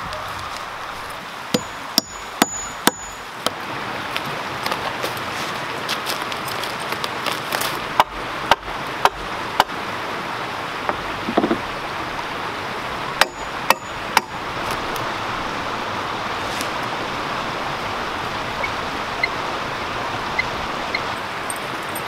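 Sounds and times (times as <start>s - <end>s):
creek rushing: 0.0s - 22.0s
wooden poles knocking: 10.9s - 11.6s.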